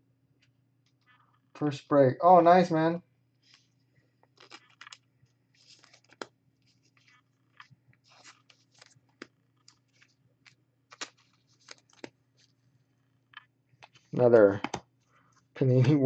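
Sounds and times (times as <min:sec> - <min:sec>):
trading cards clicking and scraping: 0:03.4 - 0:15.0.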